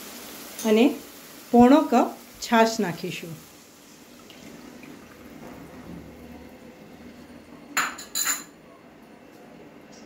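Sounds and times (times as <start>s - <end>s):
liquid trickling into a pan: 3.4s - 8.4s
kitchen utensils clinking: 7.7s - 8.6s.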